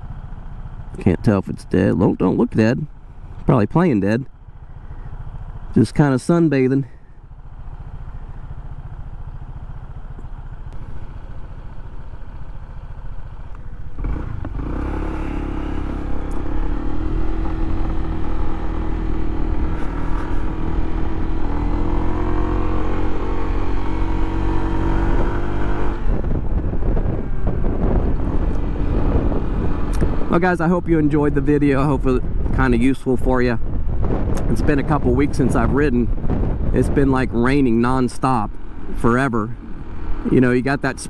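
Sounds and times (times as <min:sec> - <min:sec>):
scooter engine: 0:00.0 - 0:01.2, 0:02.9 - 0:03.4, 0:04.3 - 0:05.8, 0:07.0 - 0:30.4, 0:37.4 - 0:41.0.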